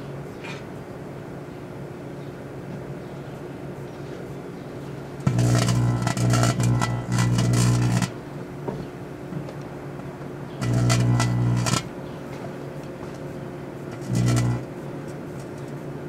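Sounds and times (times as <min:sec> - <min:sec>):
microwave oven humming: 0:00.0 - 0:16.0
buzzing crackling bursts: 0:05.2 - 0:08.2, 0:10.6 - 0:12.0, 0:13.8 - 0:14.8.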